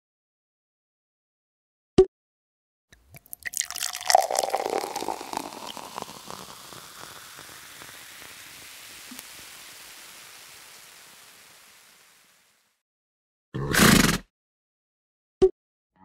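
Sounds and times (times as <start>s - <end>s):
crackling fizz and hiss: 3.0s - 12.8s.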